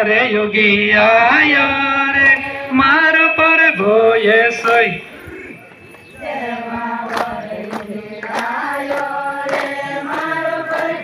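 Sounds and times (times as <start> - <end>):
group singing devotional song: 1.0 - 2.8, 4.5 - 11.0.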